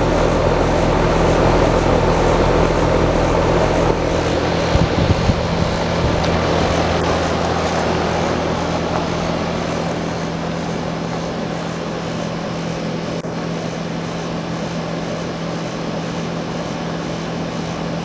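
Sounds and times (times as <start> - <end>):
condenser fan rushing: 0.0 - 18.0
constant low hum: 0.0 - 18.0.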